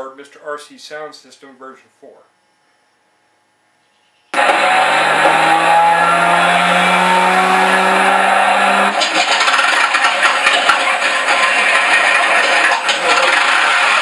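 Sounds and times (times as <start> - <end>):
aero engine starting: 4.4 - 14.0.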